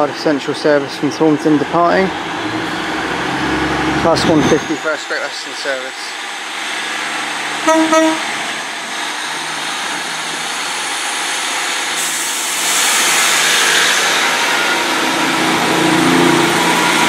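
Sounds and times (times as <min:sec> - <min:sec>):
diesel train engines under load: 0:00.0 - 0:17.0
train horn toots: 0:07.6 - 0:08.4.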